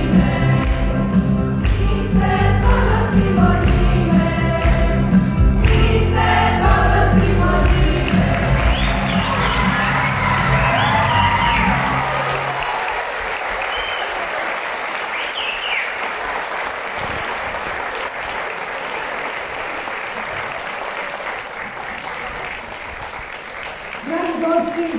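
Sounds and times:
music: 0.0s - 12.6s
audience applauding: 7.5s - 24.9s.

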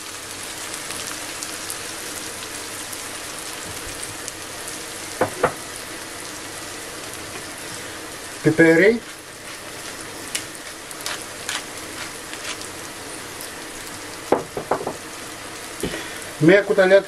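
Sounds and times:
vegetables sizzling in a frying pan: 0.0s - 17.0s
sharp knocks: 5.2s - 5.6s, 14.3s - 15.0s.

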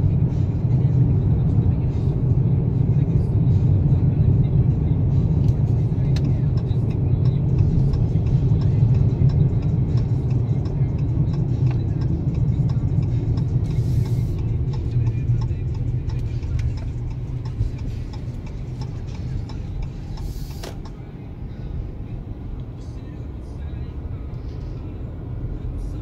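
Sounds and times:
road and engine rumble in car: 0.0s - 26.0s
light ticking: 5.5s - 21.0s.

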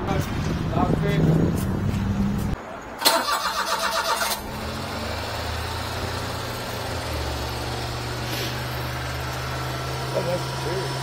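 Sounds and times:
van engine idling: 3.0s - 11.0s.

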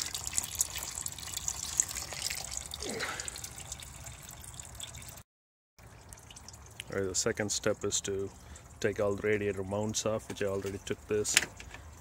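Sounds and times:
coolant trickling into plastic pan: 0.0s - 5.2s, 5.8s - 12.0s.

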